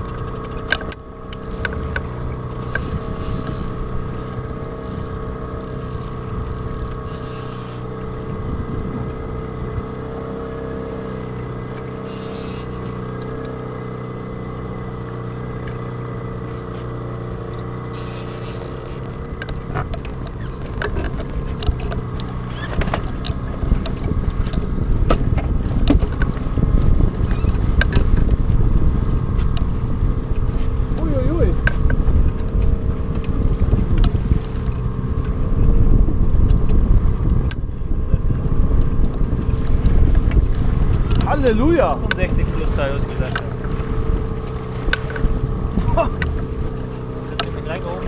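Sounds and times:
outboard motor humming: 0:00.0 - 0:48.0
wind rumble on microphone: 0:00.0 - 0:48.0
short hisses: 0:18.0 - 0:18.8.

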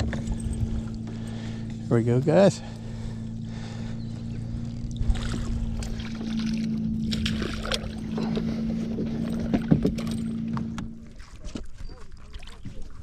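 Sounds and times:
steady low hum: 0:00.0 - 0:13.0
water splashing: 0:04.9 - 0:13.0.

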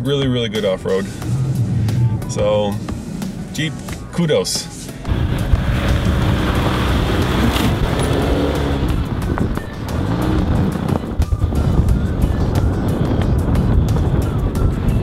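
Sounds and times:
background music: 0:00.0 - 0:15.0
suv engine pulling through snow: 0:05.1 - 0:11.8.

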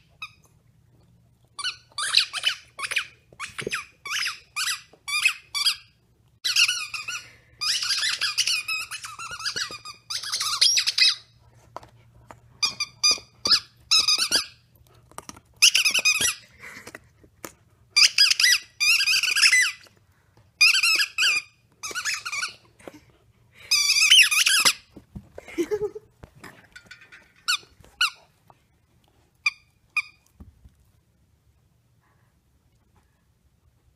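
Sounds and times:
squeaker toy squeaking: 0:01.6 - 0:11.4, 0:12.6 - 0:14.6, 0:15.6 - 0:16.4, 0:18.0 - 0:19.9, 0:20.6 - 0:22.7, 0:23.7 - 0:24.9.

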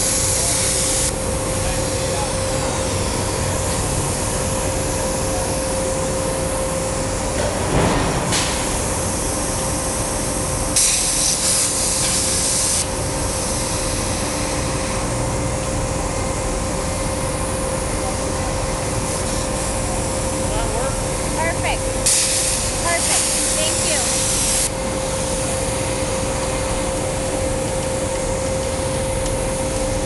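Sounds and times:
plasma torch hissing: 0:00.0 - 0:01.2, 0:10.7 - 0:13.8, 0:22.0 - 0:25.5
steady machine hum: 0:00.0 - 0:30.0.

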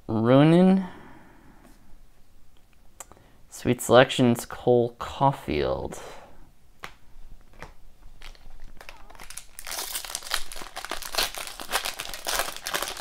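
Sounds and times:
foil wrapper crinkling: 0:08.2 - 0:13.0.

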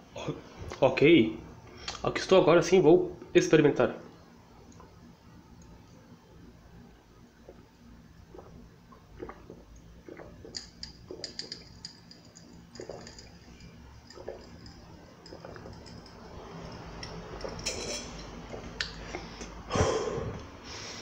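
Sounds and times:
person swallowing: 0:08.3 - 0:11.4
ice clinking in glass: 0:17.0 - 0:18.4.

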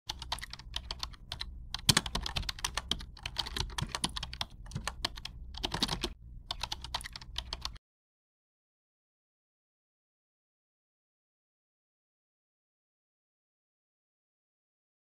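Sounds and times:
keyboard key clicks: 0:00.1 - 0:07.8.

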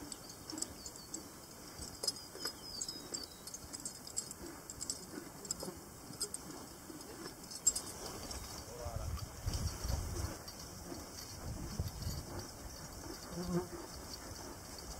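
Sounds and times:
horse tack and hooves clicking: 0:00.0 - 0:14.9.

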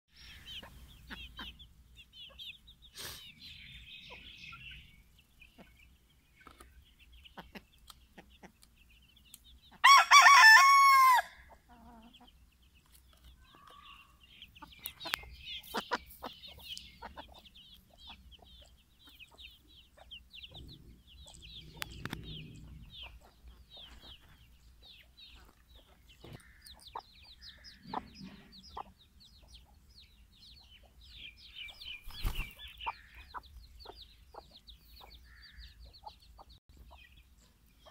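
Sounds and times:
chicks peeping: 0:00.2 - 0:10.2, 0:11.4 - 0:37.9
hens clucking: 0:05.5 - 0:08.8, 0:13.6 - 0:29.8
rooster crowing: 0:09.8 - 0:11.4.

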